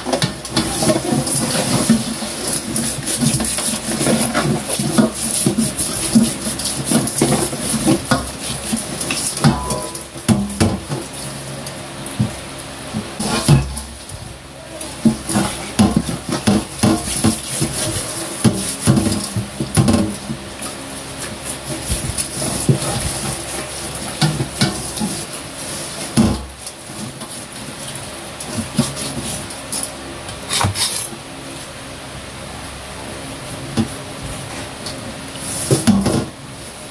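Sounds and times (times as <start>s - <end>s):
metal bowl knocking and rattling: 0.0s - 11.1s, 15.0s - 20.5s
steady low hum: 0.0s - 36.9s
chicken rubbed by hand in bowl: 0.2s - 10.2s, 14.3s - 31.2s.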